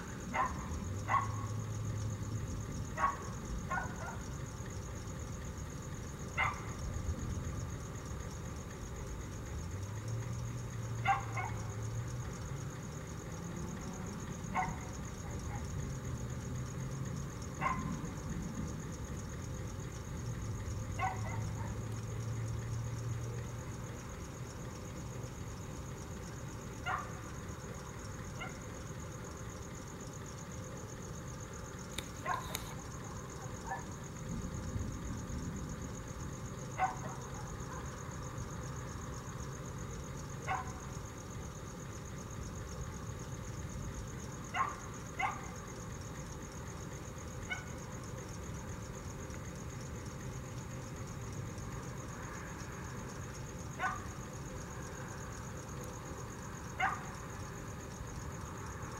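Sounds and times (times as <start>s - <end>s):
low background noise: 0.0s - 58.9s
dog barking: 0.3s - 1.5s, 3.0s - 4.2s, 6.4s - 6.8s, 11.0s - 11.7s, 14.5s - 15.7s, 17.6s - 18.0s, 21.0s - 21.8s, 26.8s - 27.2s, 28.4s - 28.7s, 32.2s - 32.8s, 33.4s - 33.9s, 36.8s - 38.0s, 40.5s - 40.8s, 44.5s - 45.6s, 47.5s - 47.8s, 53.8s - 54.1s, 56.8s - 57.2s.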